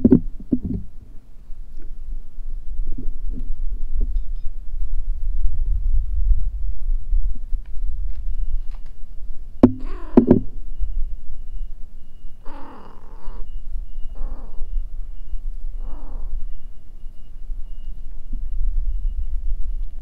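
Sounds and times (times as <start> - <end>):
low steady rumble: 0.0 - 20.0
crow cawing: 9.8 - 10.3, 12.4 - 14.8, 15.8 - 16.7.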